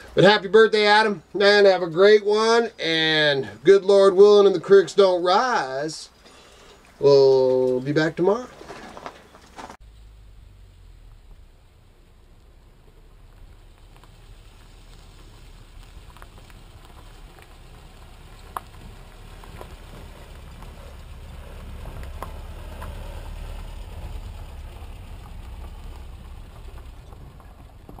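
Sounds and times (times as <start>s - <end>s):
pickup truck driving on dirt: 0.0s - 28.0s.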